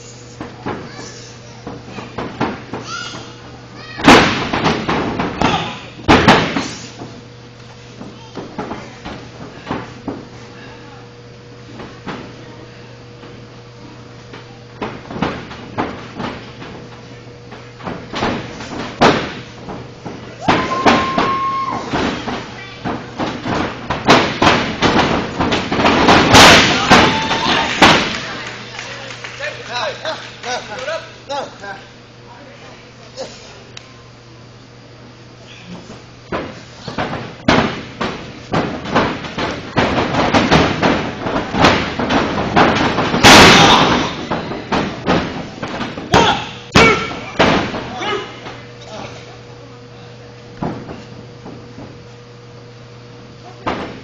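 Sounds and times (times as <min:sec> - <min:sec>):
wrestlers slapping and hitting ring: 0:00.3 - 0:10.4, 0:11.6 - 0:31.7, 0:35.7 - 0:49.2, 0:50.4 - 0:52.2, 0:53.3 - 0:54.0
body slamming onto mat: 0:04.0 - 0:06.8, 0:17.8 - 0:28.1, 0:36.3 - 0:47.9
audience shouting: 0:26.8 - 0:27.8.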